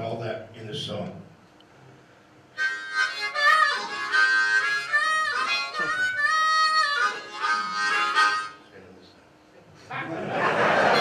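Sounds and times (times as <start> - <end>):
solo harmonica: 2.5 - 8.8.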